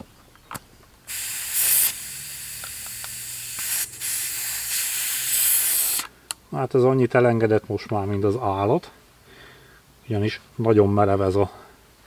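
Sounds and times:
compressed air hissing from tyre: 1.1s - 6.2s.

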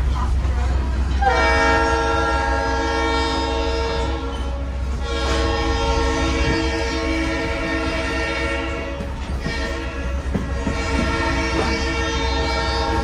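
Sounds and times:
moving train rumble: 0.0s - 13.0s
train horn blasts: 0.6s - 13.0s.

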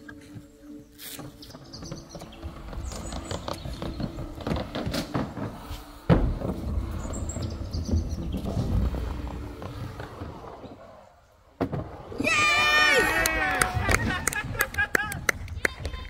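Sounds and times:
birds chirping: 0.0s - 4.8s, 6.7s - 11.5s.

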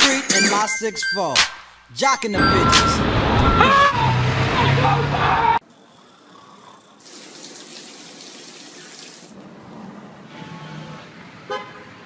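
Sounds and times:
tap water running into bathtub: 7.0s - 9.3s.

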